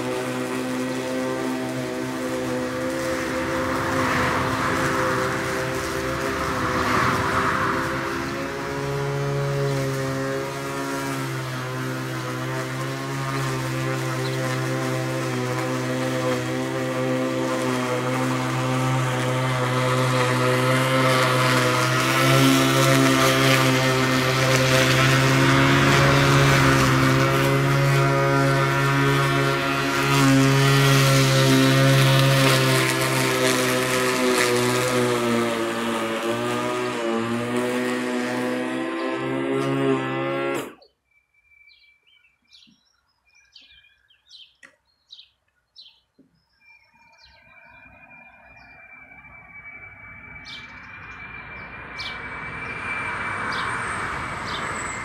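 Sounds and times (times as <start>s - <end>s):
electric lawn mower humming: 0.0s - 40.9s, 47.1s - 55.0s
grass cutting rushing noise: 0.0s - 40.9s, 47.1s - 55.0s
small birds chirping: 13.4s - 15.9s, 40.7s - 49.2s, 50.4s - 52.9s, 53.5s - 55.0s.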